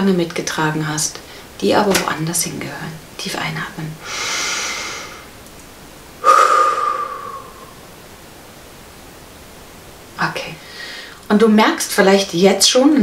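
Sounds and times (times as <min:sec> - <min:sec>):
woman breathing in: 0:04.0 - 0:05.3, 0:06.2 - 0:07.9, 0:10.6 - 0:11.2
woman breathing out: 0:04.0 - 0:05.3, 0:06.2 - 0:07.9, 0:10.6 - 0:11.2.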